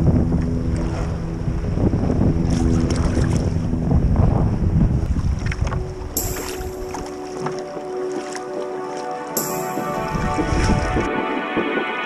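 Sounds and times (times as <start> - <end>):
wind buffeting microphone: 0.0 - 8.0, 9.4 - 12.0
steady low tones: 0.0 - 12.0.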